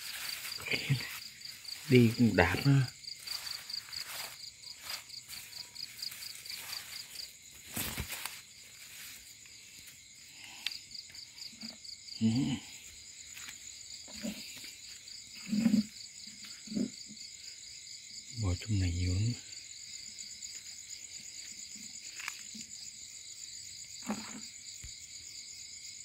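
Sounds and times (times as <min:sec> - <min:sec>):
leaves rustling: 0:00.0 - 0:10.6
insects chirping: 0:00.0 - 0:26.0.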